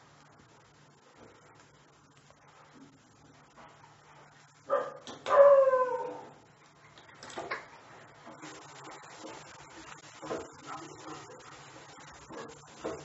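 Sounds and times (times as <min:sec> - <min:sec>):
dog barking: 0:04.7 - 0:06.0.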